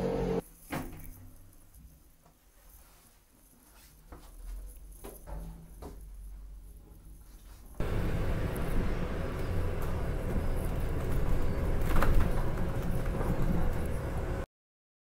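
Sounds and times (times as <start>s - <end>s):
bus engine and road rumble: 7.8s - 14.4s.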